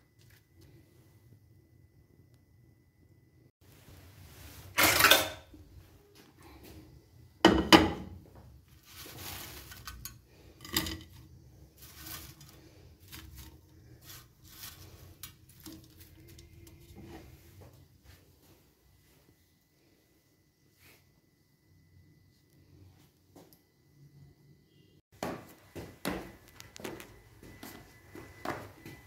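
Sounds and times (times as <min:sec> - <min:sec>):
kitchenware clattering: 0:04.7 - 0:05.6, 0:07.4 - 0:08.2, 0:09.5 - 0:12.6.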